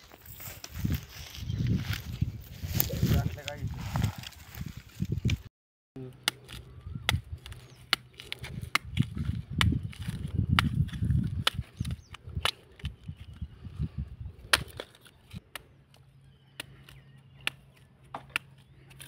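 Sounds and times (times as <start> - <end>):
knife chopping fruit husk: 6.1 - 13.0, 14.5 - 19.0.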